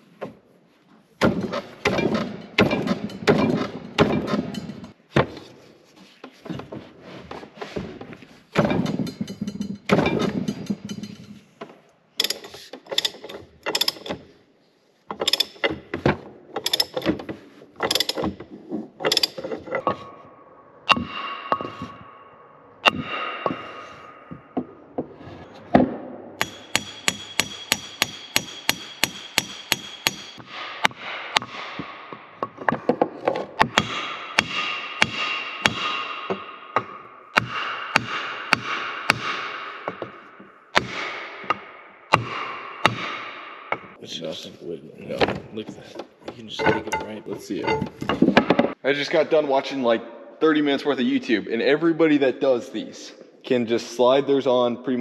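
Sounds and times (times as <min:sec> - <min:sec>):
metal knocking and rattling: 0:01.2 - 0:05.6, 0:06.2 - 0:14.4, 0:15.1 - 0:20.2, 0:45.2 - 0:48.8
ringing metallic tones: 0:08.7 - 0:11.5, 0:46.5 - 0:48.2.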